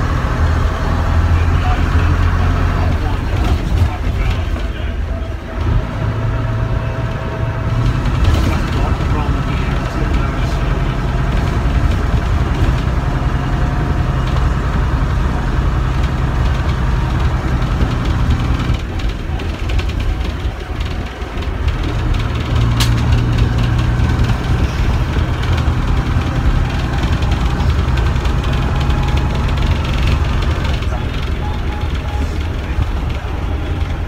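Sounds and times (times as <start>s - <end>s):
diesel bus engine pulling: 0.0s - 34.0s
sharp click: 22.7s - 23.1s.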